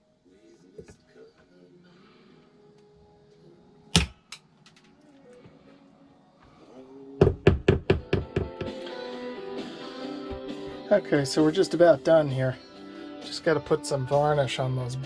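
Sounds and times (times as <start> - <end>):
hammer tapping wood: 7.2 - 8.8.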